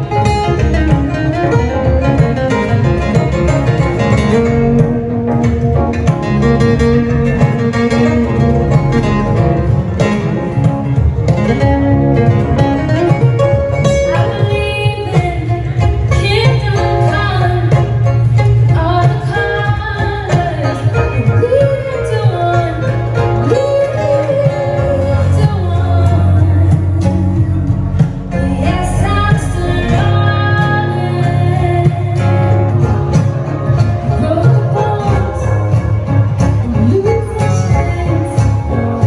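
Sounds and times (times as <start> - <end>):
banjo picking fast runs: 0.0 - 39.0
stage keyboard accompaniment: 0.0 - 39.0
woman singing: 14.0 - 32.8, 34.0 - 39.0.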